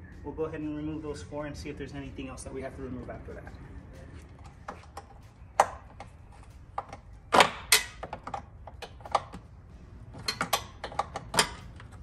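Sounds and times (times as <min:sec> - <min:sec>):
hand tools clicking and clanking: 0:04.2 - 0:09.4, 0:10.1 - 0:12.0.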